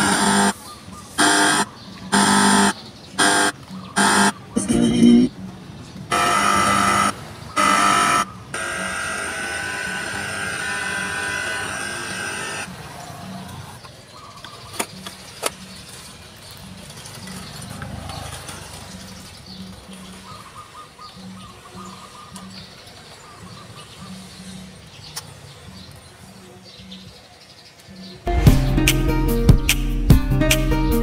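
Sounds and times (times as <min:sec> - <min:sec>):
loud tone bursts: 0:00.0 - 0:00.6, 0:01.2 - 0:05.3, 0:06.1 - 0:12.7
music-like sound from speakers: 0:04.6 - 0:05.3, 0:28.3 - 0:31.0.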